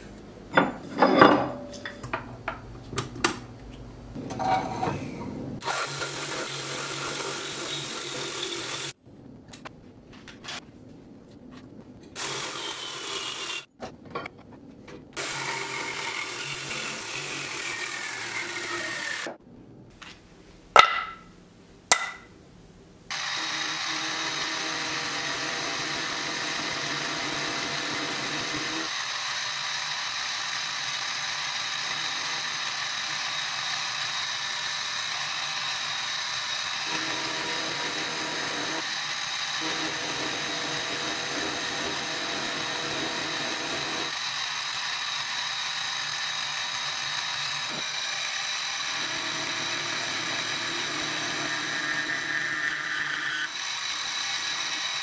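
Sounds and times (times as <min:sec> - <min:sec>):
milling machine cutting steel: 0:15.2 - 0:19.4, 0:23.1 - 0:55.0.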